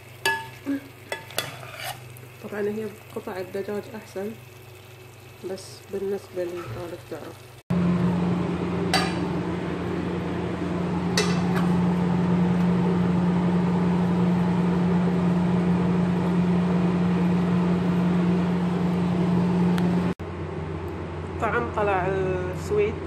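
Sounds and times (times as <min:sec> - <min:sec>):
appliance motor humming: 0:06.5 - 0:20.2.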